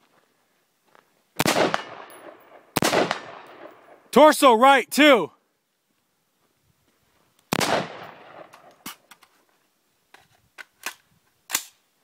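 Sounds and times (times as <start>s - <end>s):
loud rifle shot: 1.4s - 3.7s, 7.5s - 8.7s.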